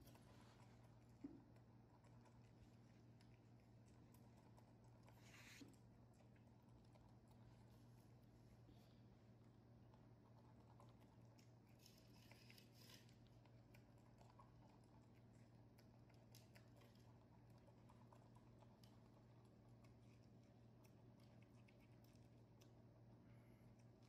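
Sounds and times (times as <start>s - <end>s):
faint clicks of nibbling: 9.9s - 22.9s.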